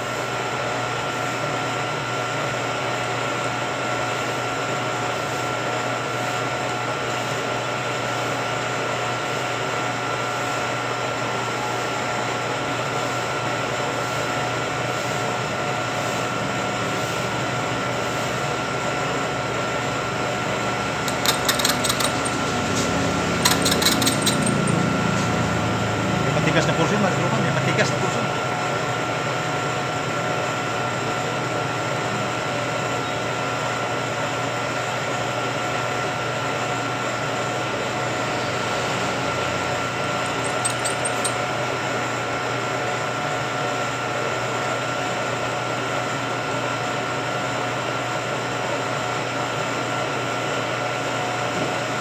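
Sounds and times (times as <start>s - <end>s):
milling machine whining: 20.5s - 25.5s, 40.2s - 41.6s
rapid metallic clicking: 21.0s - 22.6s, 23.4s - 24.9s, 40.3s - 41.4s.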